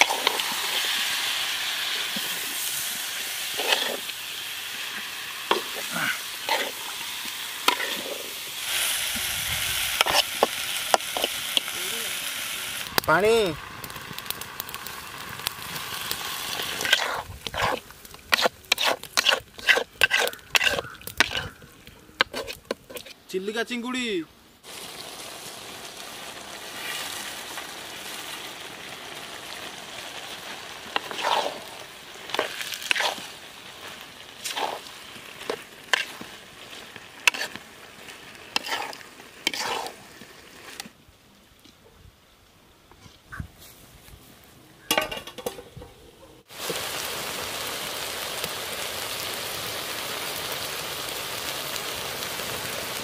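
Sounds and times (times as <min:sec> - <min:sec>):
ladle scraping a wok: 0:00.0 - 0:01.3, 0:01.9 - 0:11.7, 0:16.7 - 0:21.6, 0:22.2 - 0:23.2, 0:30.9 - 0:37.6, 0:38.5 - 0:40.8
food frying sizzle: 0:00.0 - 0:21.6, 0:24.6 - 0:41.0, 0:46.4 - 0:53.0
water hissing in a hot wok: 0:00.0 - 0:21.6, 0:24.6 - 0:40.9, 0:46.4 - 0:53.0.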